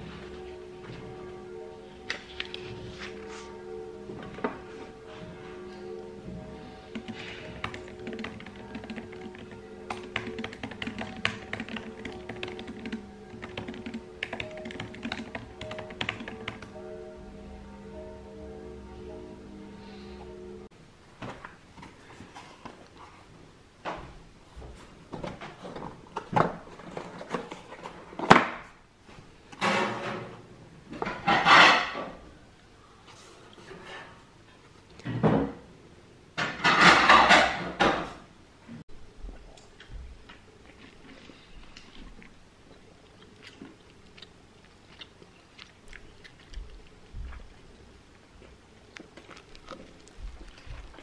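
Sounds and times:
person chewing crunchy food: 40.6 - 51.0.

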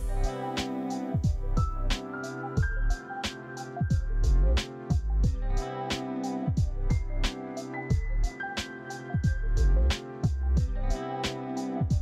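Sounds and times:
deep kick drum: 1.2 - 2.0, 2.6 - 3.0, 3.9 - 5.6, 6.5 - 7.3, 7.9 - 8.3, 9.2 - 11.0.

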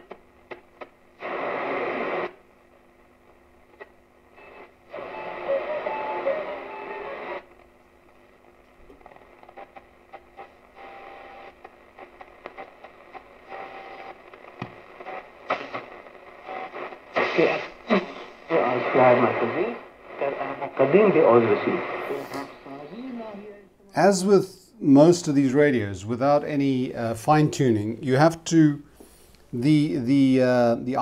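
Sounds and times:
radio static: 0.0 - 24.3
shortwave radio tuning: 0.8 - 31.0.

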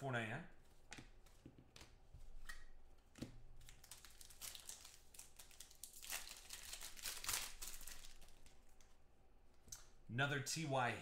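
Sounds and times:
foil pack crinkling: 3.6 - 8.9.

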